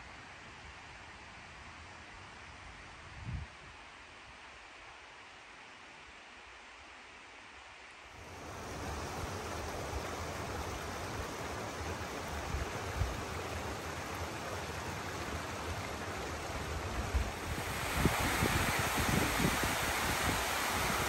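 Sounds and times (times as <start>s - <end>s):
faint hiss: 0.0s - 21.0s
creek flowing over rocks: 8.1s - 21.0s.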